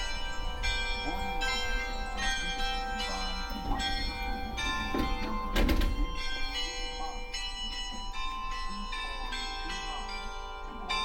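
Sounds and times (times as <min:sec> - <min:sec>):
bell-like ringing tones: 0:00.0 - 0:11.0.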